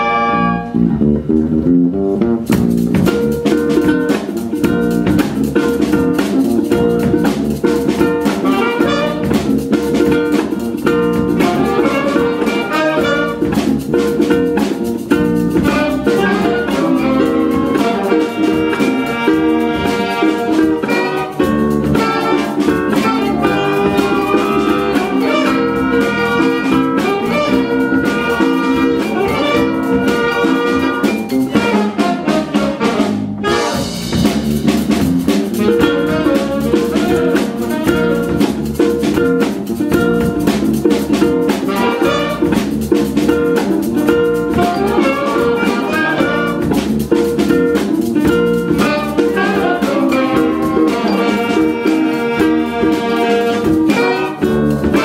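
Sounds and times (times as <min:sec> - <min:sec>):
saxophone: 0:00.0 - 0:01.0, 0:08.2 - 0:09.5, 0:11.4 - 0:13.7, 0:15.6 - 0:34.1, 0:35.6 - 0:38.6, 0:41.6 - 0:42.6, 0:44.1 - 0:46.9, 0:48.3 - 0:55.0
jazz band playing funk: 0:00.0 - 0:55.0.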